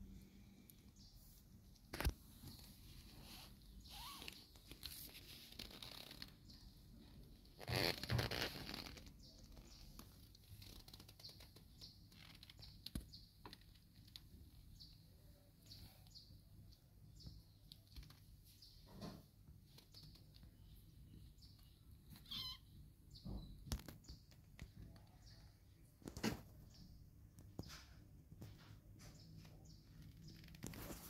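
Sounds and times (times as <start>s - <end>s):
fur rustling against microphone: 30.6s - 31.0s.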